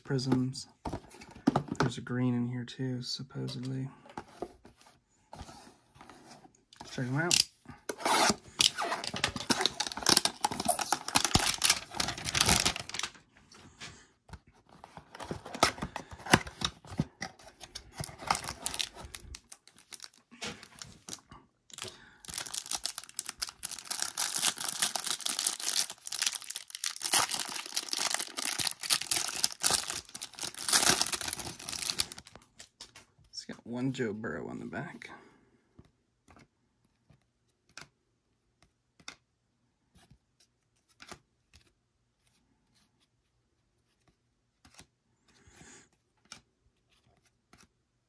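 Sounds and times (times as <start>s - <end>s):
cellophane wrapper crinkling: 8.6s - 13.2s, 17.8s - 32.8s.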